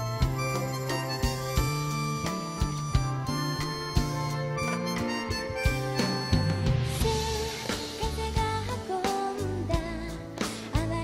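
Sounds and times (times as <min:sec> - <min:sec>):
live band music: 0:00.0 - 0:11.0.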